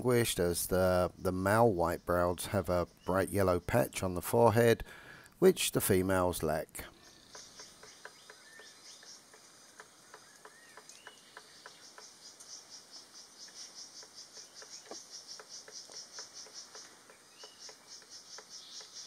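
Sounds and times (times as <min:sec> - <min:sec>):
insect chirping: 0:00.0 - 0:19.0
bird pecking bamboo: 0:07.2 - 0:19.0.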